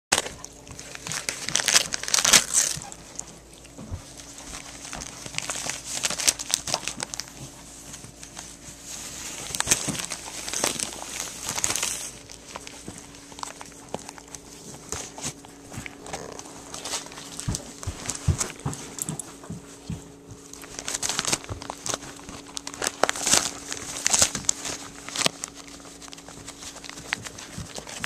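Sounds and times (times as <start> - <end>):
dog tearing paper and plastic: 0.1 - 3.4, 4.0 - 19.2, 20.5 - 28.0.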